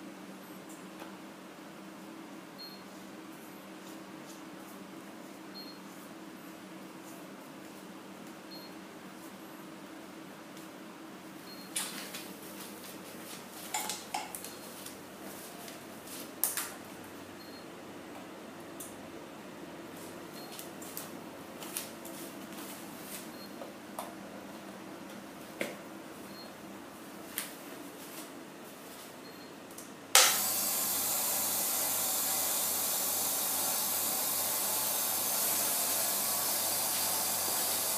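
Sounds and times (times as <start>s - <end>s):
air compressor running: 30.2s - 37.9s.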